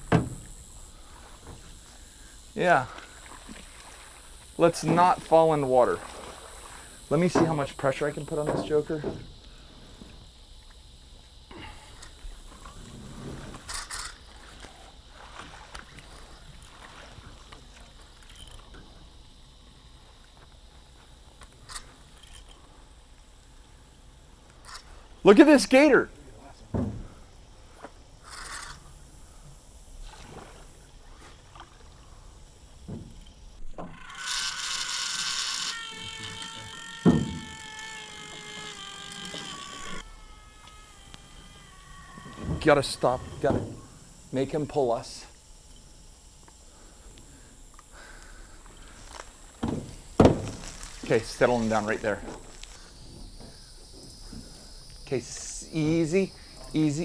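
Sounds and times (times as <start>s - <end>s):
knocks on metal boat: 0.0s - 0.5s, 49.6s - 50.6s
loud thump on hull: 0.0s - 0.5s, 26.7s - 27.2s, 42.3s - 44.0s, 49.6s - 50.9s
small knocks on boat: 0.0s - 0.6s, 8.3s - 9.4s, 26.6s - 27.2s, 49.6s - 50.8s
water splashing: 0.0s - 9.7s, 13.6s - 19.0s, 24.6s - 57.0s
fishing reel drag hissing: 0.0s - 57.0s
light water movement: 0.0s - 57.0s.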